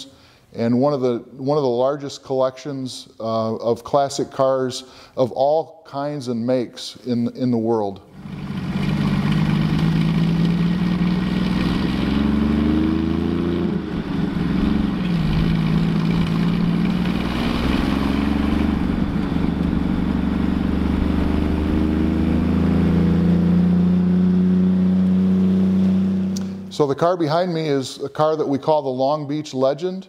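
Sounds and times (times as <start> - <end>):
car engine revving: 8.1 - 26.8.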